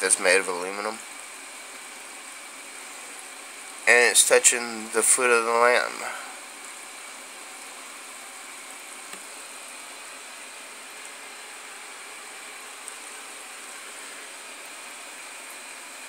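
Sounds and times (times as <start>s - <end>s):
steady background hiss: 0.0s - 16.0s
faint clicks: 9.1s - 9.3s.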